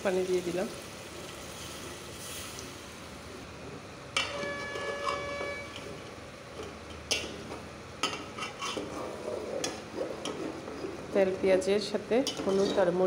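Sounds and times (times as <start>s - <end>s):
sizzle: 0.0s - 3.5s
pot ringing: 4.2s - 5.8s
spoon scraping metal pot: 4.2s - 6.0s, 8.1s - 11.0s, 12.2s - 13.0s.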